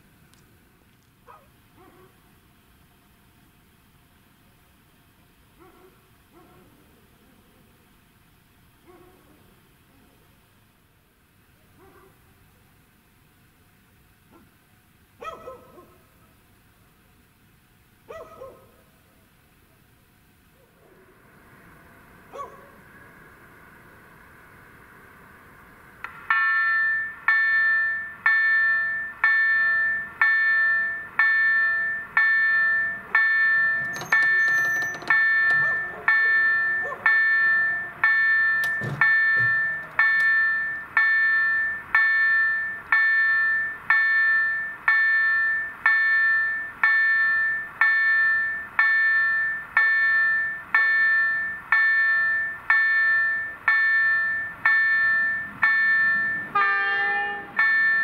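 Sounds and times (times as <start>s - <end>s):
electronic crossing bell chime: 26.3s - 56.6s, 57.6s - 58.0s.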